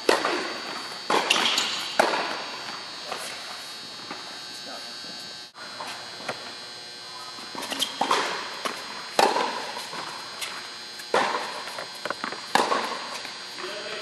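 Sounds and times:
racquet hitting tennis ball: 0:00.0 - 0:03.3, 0:07.5 - 0:13.8
tennis ball bouncing: 0:01.1 - 0:02.8, 0:07.5 - 0:13.4.

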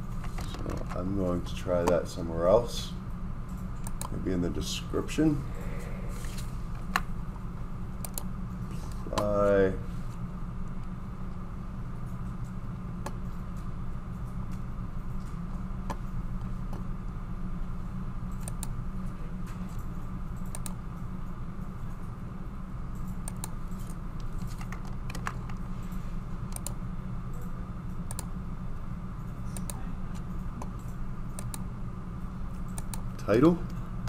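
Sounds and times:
low electrical hum: 0:00.0 - 0:34.0
computer mouse clicks: 0:03.8 - 0:04.1, 0:08.0 - 0:08.3, 0:18.3 - 0:18.8, 0:20.4 - 0:20.8, 0:23.0 - 0:25.6, 0:26.5 - 0:27.5, 0:28.1 - 0:28.3, 0:29.5 - 0:29.8, 0:30.6 - 0:31.6, 0:32.6 - 0:33.1.

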